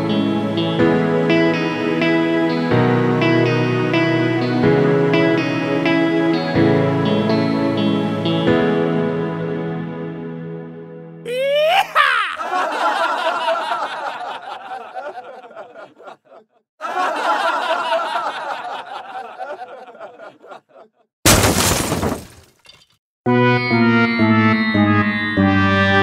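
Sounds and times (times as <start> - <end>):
person laughing hard: 11.3 - 21.1.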